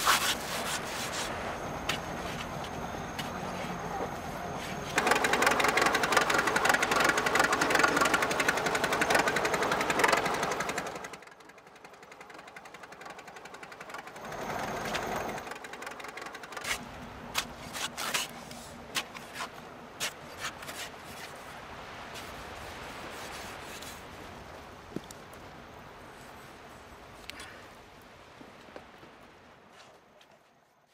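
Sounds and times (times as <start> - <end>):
fast mechanical rattling: 5.0 - 16.8.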